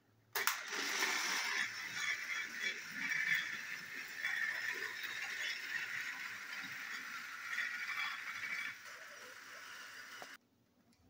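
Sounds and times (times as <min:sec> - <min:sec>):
toy train motor whir: 0:00.4 - 0:10.4
wheels rattling on plastic track: 0:00.4 - 0:10.4.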